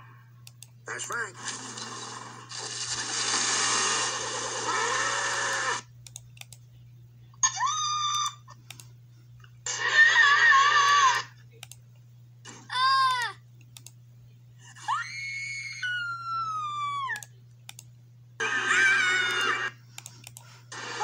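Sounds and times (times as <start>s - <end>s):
low electrical hum: 0.0s - 21.0s
cartoon screams: 4.6s - 5.8s, 7.4s - 8.4s, 9.7s - 11.3s, 14.9s - 17.2s, 18.4s - 19.8s.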